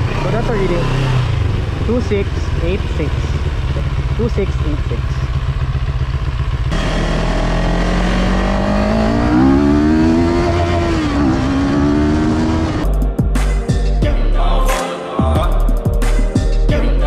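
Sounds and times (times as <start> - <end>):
motorcycle engine accelerating: 0.0 - 12.9.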